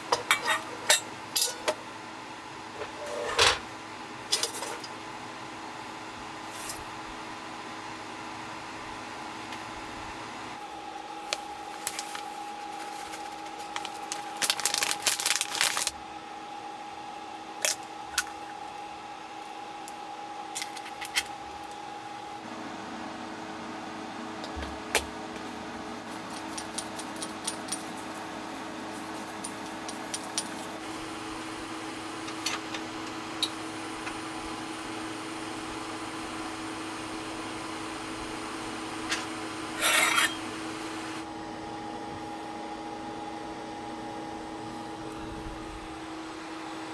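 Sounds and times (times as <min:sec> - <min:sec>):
steady electrical hum: 0:00.0 - 0:46.9
packaging rustling: 0:11.2 - 0:15.9.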